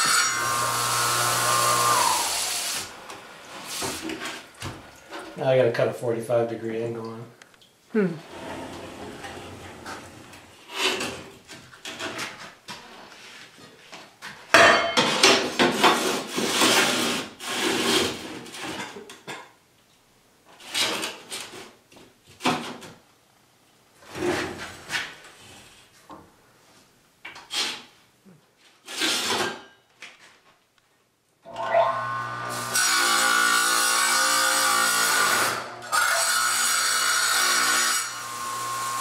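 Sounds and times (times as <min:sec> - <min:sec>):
stone scraping on metal table: 0:08.3 - 0:11.2.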